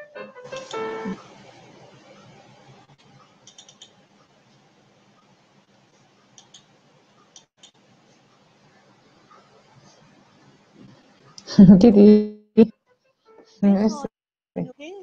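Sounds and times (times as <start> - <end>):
low steady hiss: 0.0 - 11.8
computer mouse clicks: 3.0 - 4.3, 6.3 - 7.8.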